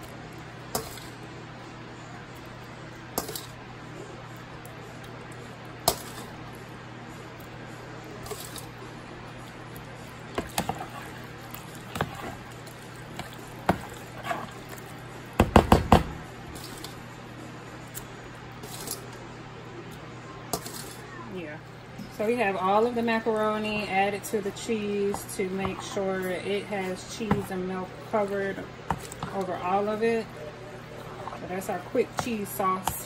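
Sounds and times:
spoon stirring wet pasta: 0.0 - 1.3, 2.3 - 3.6, 8.2 - 15.4, 16.5 - 17.0, 17.8 - 19.2, 19.9 - 21.0, 23.4 - 33.0.

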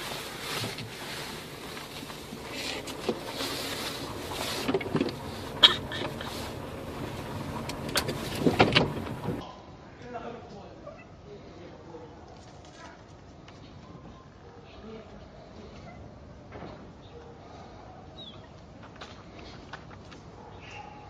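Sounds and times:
sharp knocks and scrapes: 0.0 - 9.4
windshield wiper motor whir: 0.0 - 9.4
wiper blades sweeping glass: 0.0 - 9.4.

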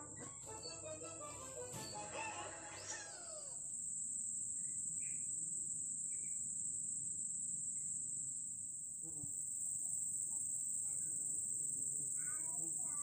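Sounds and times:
music: 0.0 - 3.2
high-pitched insect drone: 0.0 - 13.0.

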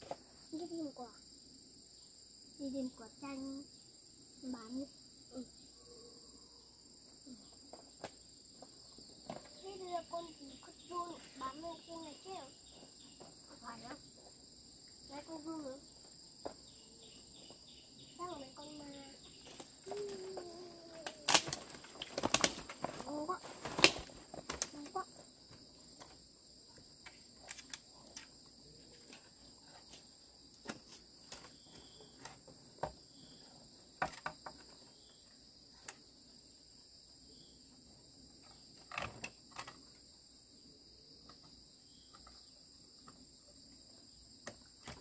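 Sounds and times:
insects chirring: 0.0 - 45.0
leaves and twigs rustling: 18.6 - 26.3.

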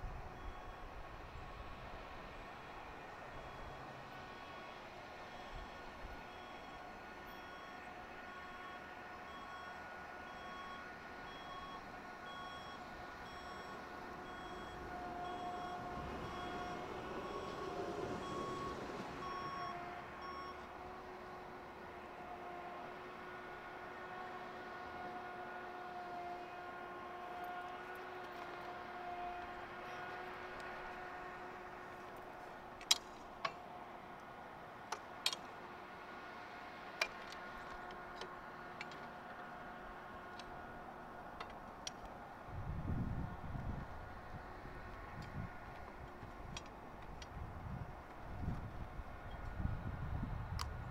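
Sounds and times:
two-pitch electronic warning beeps: 4.4 - 17.6, 18.2 - 20.7.

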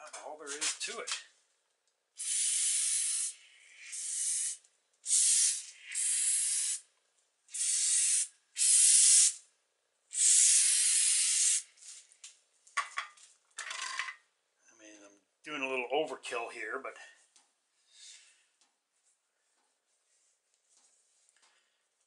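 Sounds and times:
aerosol spray hissing: 2.2 - 6.8, 7.5 - 9.4, 10.1 - 11.8.

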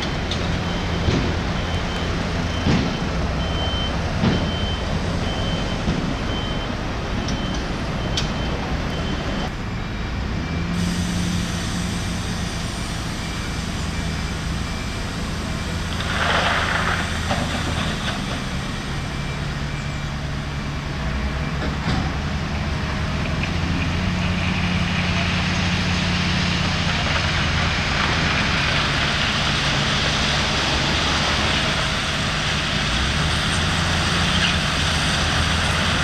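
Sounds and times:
reversing alarm beeping: 0.0 - 16.1, 17.0 - 21.9
heavy diesel engines running: 0.0 - 36.0.

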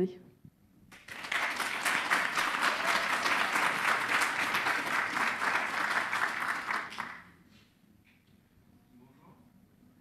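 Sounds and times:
audience applauding: 0.9 - 7.4.

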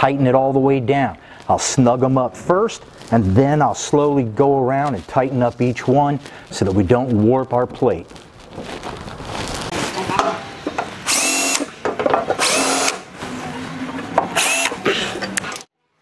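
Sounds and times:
cordless drill whining: 11.0 - 11.7, 12.4 - 13.0, 14.4 - 14.8.

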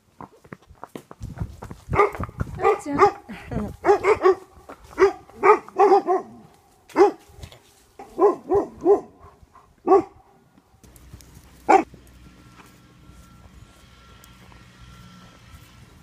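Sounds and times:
small dog barking: 1.9 - 7.3, 8.0 - 10.2, 11.6 - 11.9.

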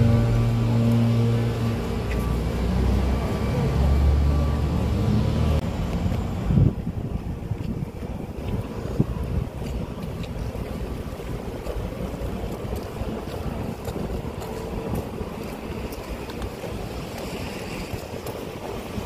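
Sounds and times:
wind buffeting microphone: 5.1 - 19.0.

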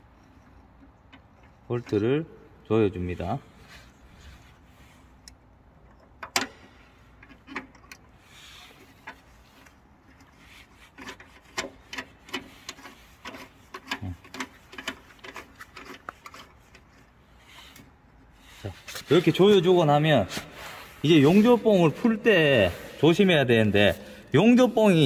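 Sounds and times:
small clicks and knocks: 5.2 - 17.1
glove rubbing: 12.4 - 25.0.

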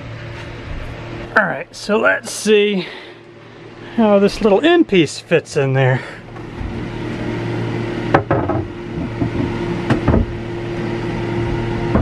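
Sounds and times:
steady hum: 0.0 - 12.0
plywood lid knocking on tank: 8.1 - 10.3.

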